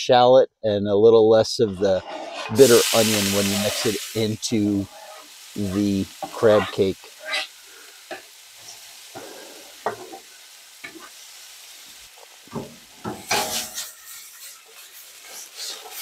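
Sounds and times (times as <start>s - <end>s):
pan moved on burner: 1.9s - 2.8s, 12.5s - 16.0s
vegetables sizzling in butter: 2.4s - 16.0s.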